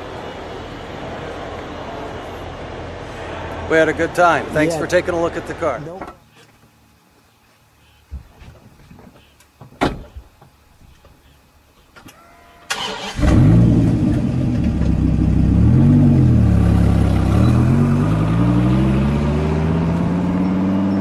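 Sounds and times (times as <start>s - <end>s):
car engine starting and revving: 12.7s - 21.0s.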